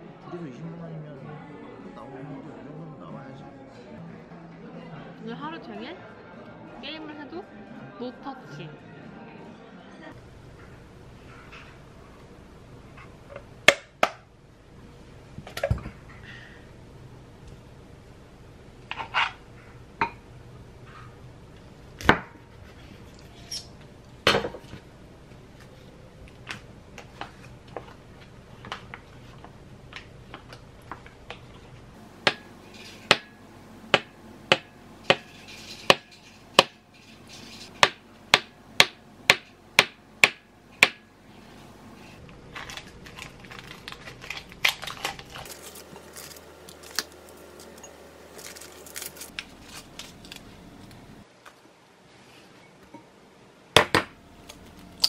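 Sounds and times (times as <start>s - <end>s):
dishes clinking: 32.3s - 33.4s, 34.6s - 37.8s.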